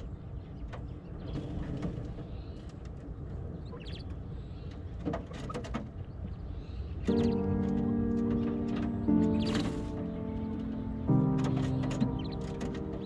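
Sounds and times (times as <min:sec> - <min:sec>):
low background rumble: 0:00.0 - 0:13.0
quail calls and chirps: 0:03.6 - 0:07.6, 0:09.1 - 0:10.0, 0:11.5 - 0:13.0.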